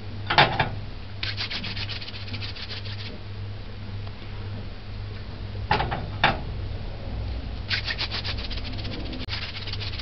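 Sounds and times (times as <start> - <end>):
palms rubbing dough: 1.2 - 3.2, 7.7 - 10.0.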